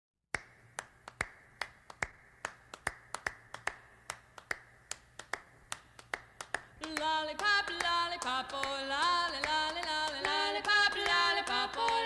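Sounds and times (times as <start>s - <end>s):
finger snaps: 0.3s - 6.7s
hand claps: 0.3s - 12.0s.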